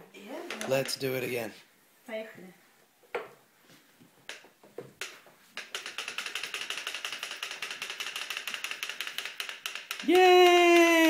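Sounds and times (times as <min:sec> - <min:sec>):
wagon wheels clicking on wood floor: 0:05.0 - 0:11.0.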